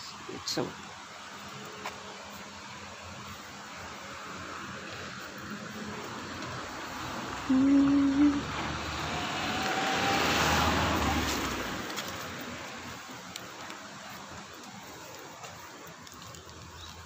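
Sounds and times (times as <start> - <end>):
motor vehicle passing: 1.0 - 17.0.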